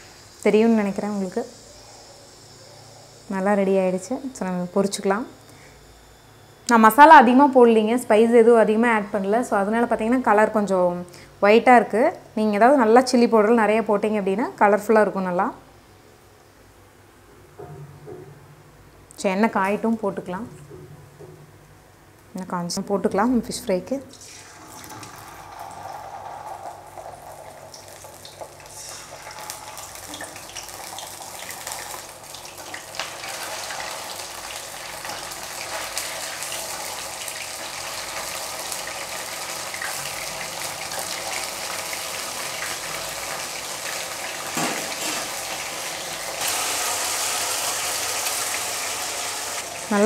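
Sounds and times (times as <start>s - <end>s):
deep-frying crackling sizzle: 0.0s - 7.0s, 24.1s - 50.0s.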